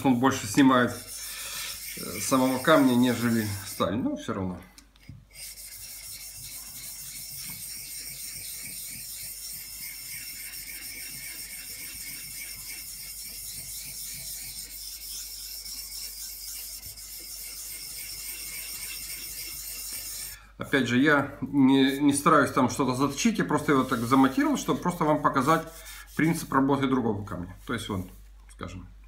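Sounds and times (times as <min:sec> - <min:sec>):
chisel scraping on whetstone: 0:00.0 - 0:03.9, 0:05.0 - 0:20.4, 0:23.0 - 0:26.6.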